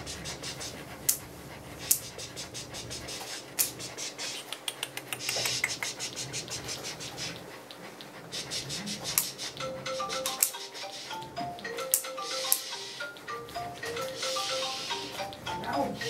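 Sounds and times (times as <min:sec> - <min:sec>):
small dog panting rapidly: 0:00.0 - 0:16.0
sharp clicks: 0:03.1 - 0:06.2.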